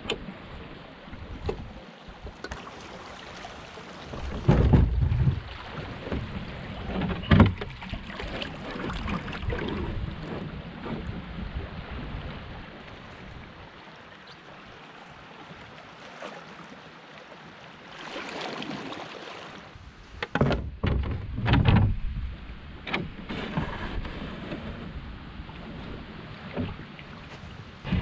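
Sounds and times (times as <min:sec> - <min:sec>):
knocks and thumps on canoe: 0:00.0 - 0:02.7, 0:03.9 - 0:12.4, 0:20.1 - 0:22.2, 0:22.8 - 0:28.0
water rushing: 0:00.0 - 0:20.2, 0:22.5 - 0:28.0.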